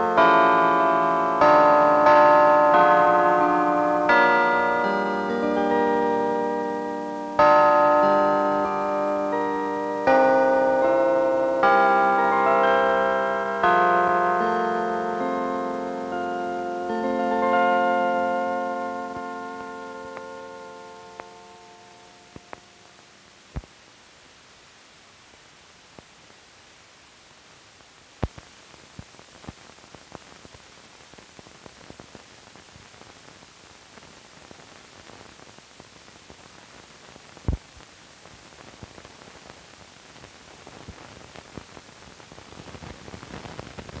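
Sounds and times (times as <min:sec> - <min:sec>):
film soundtrack hiss: 0:00.0 - 0:44.0.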